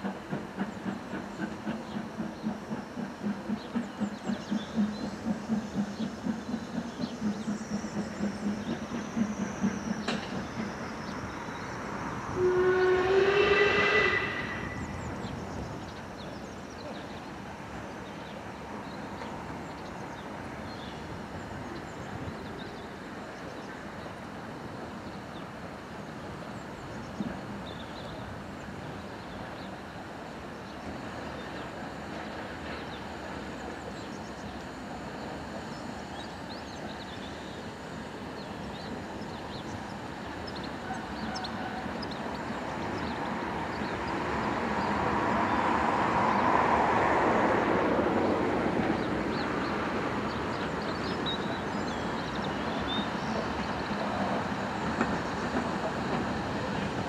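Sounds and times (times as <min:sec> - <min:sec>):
steam hissing: 0:00.0 - 0:15.4
loud rush of steam: 0:00.0 - 0:57.0.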